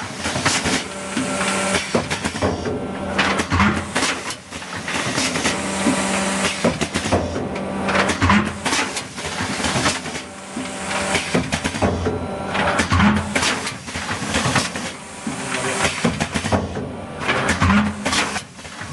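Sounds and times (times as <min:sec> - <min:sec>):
machine motor hum: 0:00.0 - 0:18.9.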